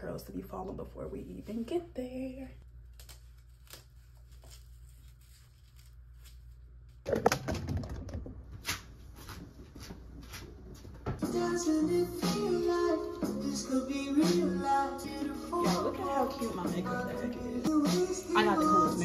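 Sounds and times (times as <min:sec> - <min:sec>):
rustling and knocking at microphone: 0:07.1 - 0:11.3
music: 0:11.2 - 0:19.0.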